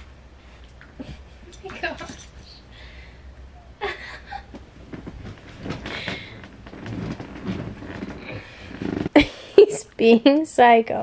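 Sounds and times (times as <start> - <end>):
dog rustling blankets: 4.6 - 9.1.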